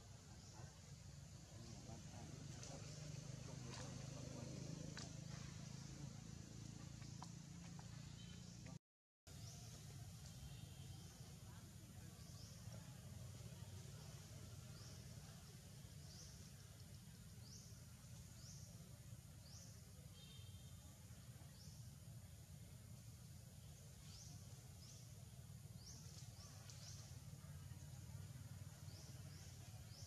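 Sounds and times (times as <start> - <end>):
low steady rumble: 0.0 - 8.8.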